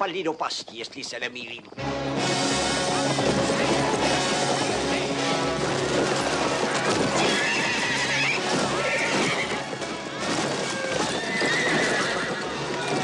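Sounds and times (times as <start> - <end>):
horse hoofbeats galloping: 0.0 - 13.0
film music: 1.7 - 13.0
horses whinnying: 2.5 - 13.0.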